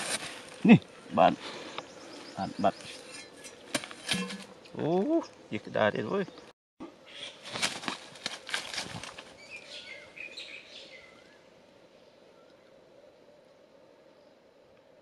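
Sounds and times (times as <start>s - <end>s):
thin high bird calls: 7.0s - 7.5s, 9.3s - 11.5s.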